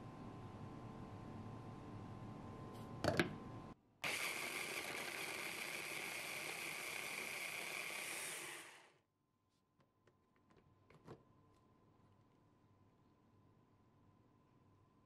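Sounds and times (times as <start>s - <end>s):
blender running: 4.0s - 9.0s.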